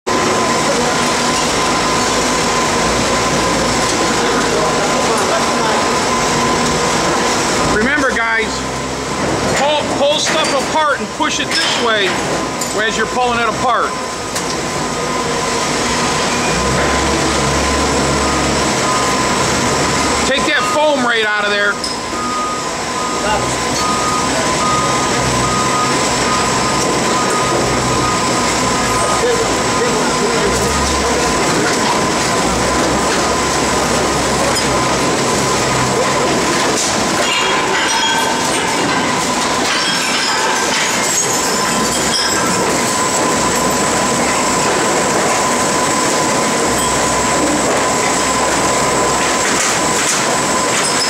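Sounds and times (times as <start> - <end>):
machinery mechanical din: 0.1 - 51.0
thin steady tone: 17.3 - 36.5.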